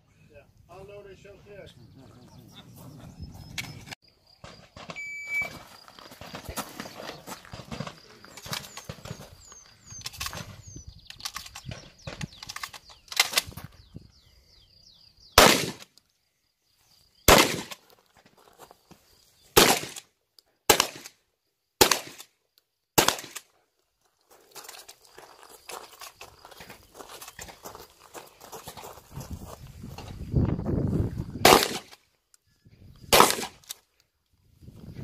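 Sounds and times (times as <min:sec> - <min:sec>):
shotgun shots: 0:15.4 - 0:15.9, 0:17.3 - 0:17.8, 0:19.6 - 0:20.0, 0:20.7 - 0:21.2, 0:21.8 - 0:22.3, 0:23.0 - 0:23.5, 0:31.4 - 0:32.0, 0:33.1 - 0:33.7.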